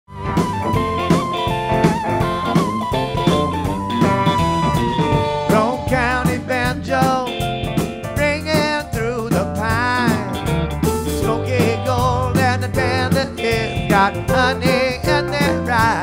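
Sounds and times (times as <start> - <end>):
rock band music: 0.1 - 16.0
person singing with vibrato: 5.0 - 7.6, 8.2 - 10.4, 11.2 - 16.0.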